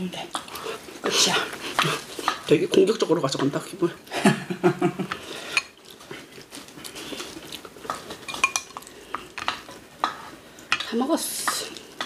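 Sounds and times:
utensils clinking against dishes: 0:08.3 - 0:08.8.

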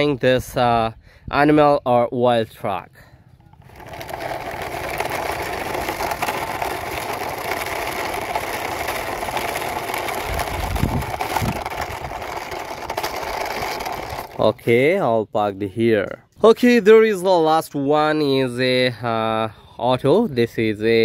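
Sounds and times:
toy truck wheels rattling on concrete: 0:03.0 - 0:15.1
low bumps: 0:03.4 - 0:14.6.

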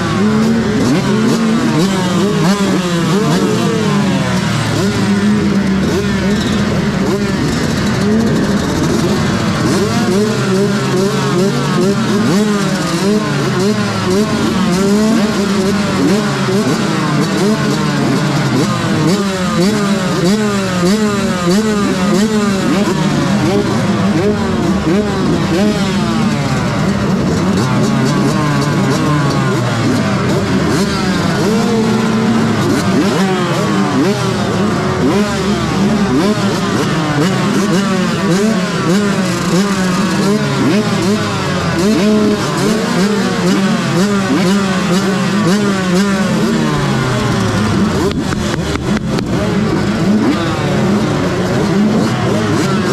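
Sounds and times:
motocross bikes revving: 0:00.0 - 0:52.9.

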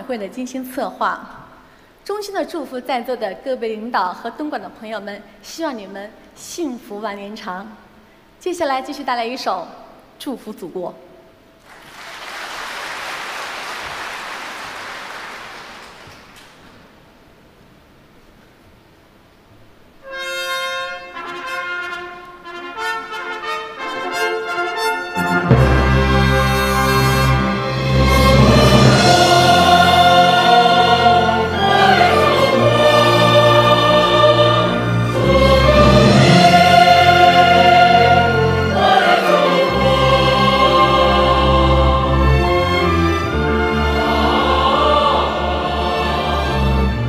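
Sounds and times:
symphony orchestra playing: 0:20.0 - 0:47.0
trumpets playing held notes: 0:20.0 - 0:47.0.

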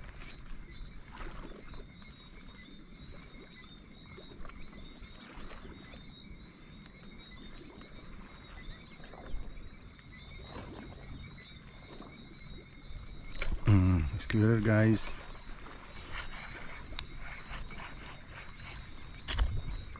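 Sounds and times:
high-pitched animal chorus: 0:13.6 - 0:19.9.

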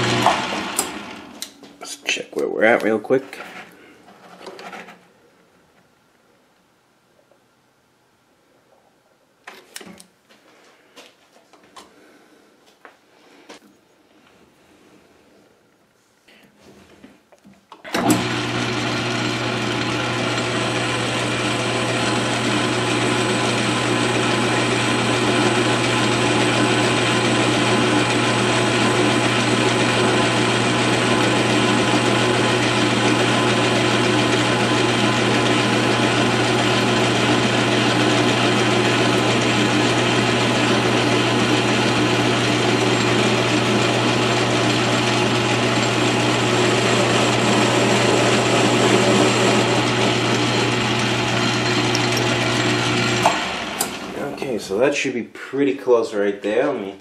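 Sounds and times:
metal lathe running: 0:18.0 - 0:54.5.

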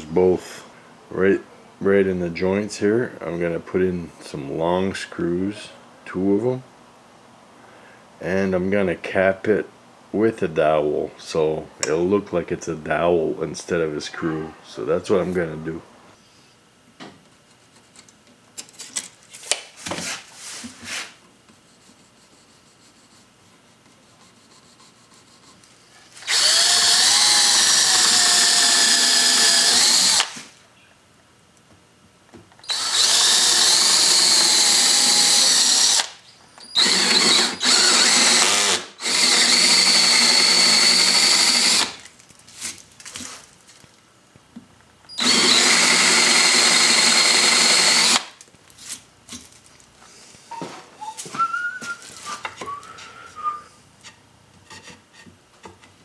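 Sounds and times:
cordless drill boring into wood: 0:26.2 - 0:30.4, 0:32.6 - 0:42.0, 0:45.1 - 0:48.3.

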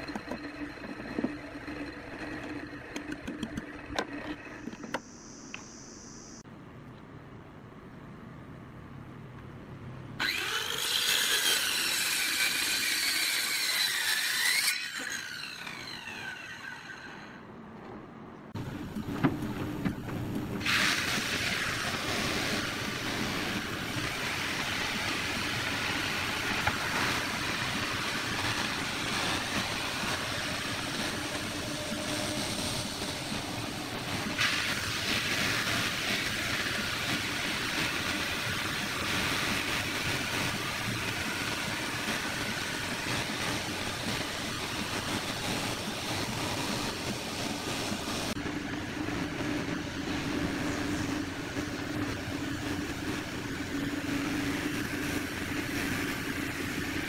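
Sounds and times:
circular saw cutting wood: 0:00.0 - 0:05.3, 0:10.2 - 0:17.5, 0:20.6 - 0:45.4
belt sander running: 0:00.0 - 0:05.4, 0:10.2 - 0:17.3
high hiss: 0:04.9 - 0:06.4.

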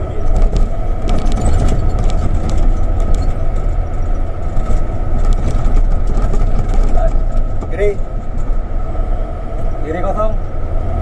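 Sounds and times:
cab clicks and rattles: 0:00.0 - 0:08.7
diesel truck engine rumble: 0:00.0 - 0:11.0.

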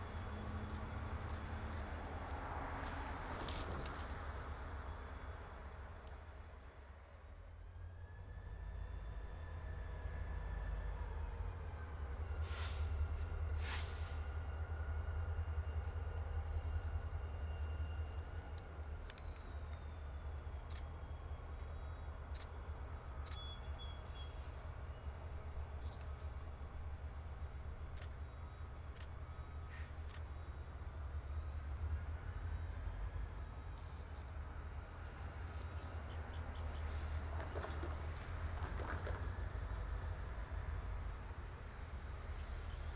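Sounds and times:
diesel locomotive engine rumbling: 0:00.0 - 0:42.9
short hisses: 0:13.6 - 0:14.2
locomotives rumbling: 0:35.2 - 0:41.9.

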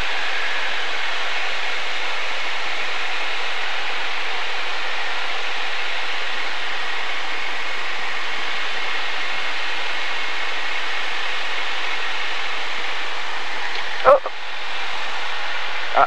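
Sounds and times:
light airplane cockpit noise: 0:12.5 - 0:16.0.

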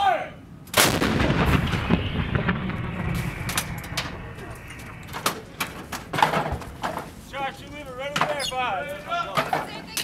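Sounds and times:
howitzer shot echo rumbling: 0:00.8 - 0:07.2.

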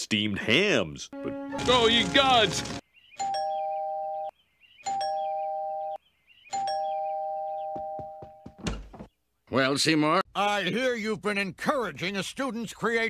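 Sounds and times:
two-tone doorbell chime: 0:03.2 - 0:04.3, 0:04.9 - 0:06.0, 0:06.6 - 0:08.3.

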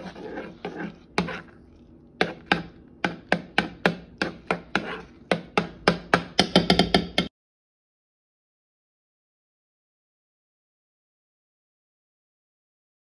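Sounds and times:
metal spoon knocking in saucepan: 0:02.2 - 0:07.3.

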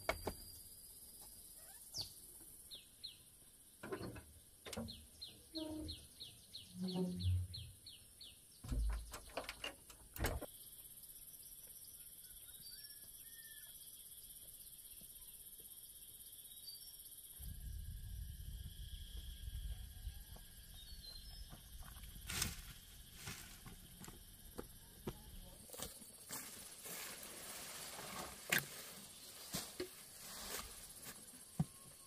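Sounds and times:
faint bird chirps: 0:01.4 - 0:03.2, 0:10.5 - 0:15.6
low rumble: 0:17.4 - 0:20.7.

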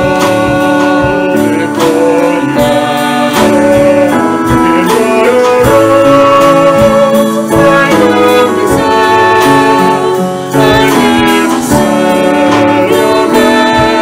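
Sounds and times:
clarinet: 0:00.0 - 0:14.0
girl singing: 0:00.0 - 0:14.0
man singing: 0:00.0 - 0:14.0
piano: 0:00.0 - 0:14.0.

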